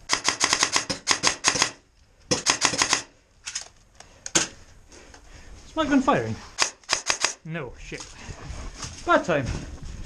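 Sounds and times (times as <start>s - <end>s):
airsoft rifle firing rapid clicks: 0.0s - 3.1s, 6.6s - 7.5s.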